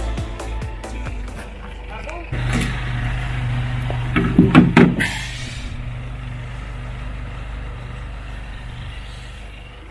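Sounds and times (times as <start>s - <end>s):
low hum: 0.9s - 9.9s
sharp clattering knocks: 3.9s - 5.0s.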